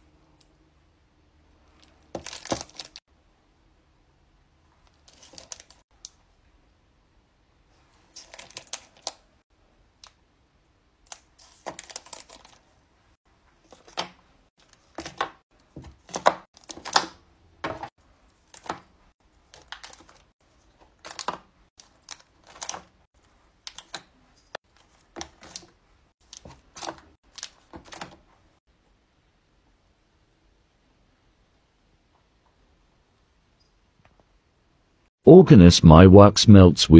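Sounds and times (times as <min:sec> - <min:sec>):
cellophane crinkling: 0:01.8 - 0:03.0, 0:04.8 - 0:05.8, 0:08.1 - 0:09.2, 0:11.1 - 0:12.7, 0:19.4 - 0:23.0.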